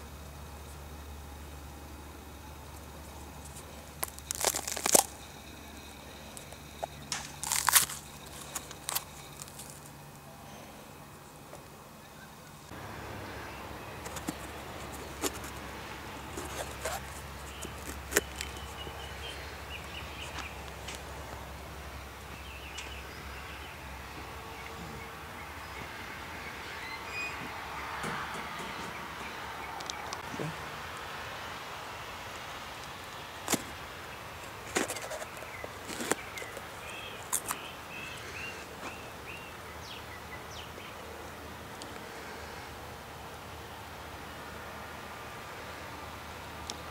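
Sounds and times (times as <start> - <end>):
bird chirping: 12.0 - 21.2, 21.8 - 30.5, 34.7 - 41.1.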